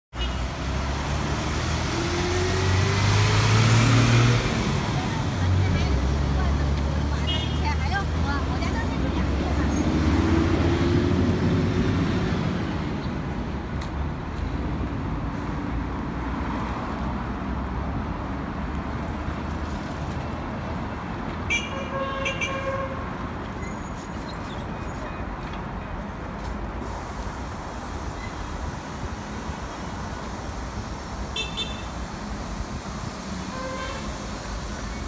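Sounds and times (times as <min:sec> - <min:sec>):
rumble of passing vehicles: 0:00.1 - 0:35.0
car horn toot: 0:31.4 - 0:31.9.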